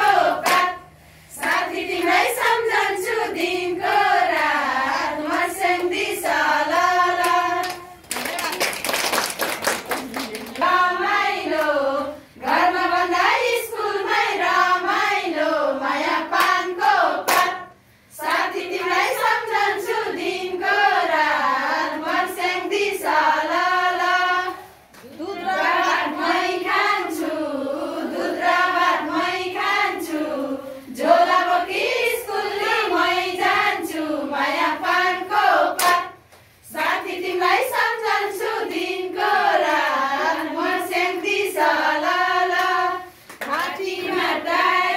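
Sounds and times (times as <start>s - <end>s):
people clapping along: 0.0s - 13.7s, 16.0s - 20.0s, 34.6s - 44.9s
women singing together: 0.0s - 44.9s.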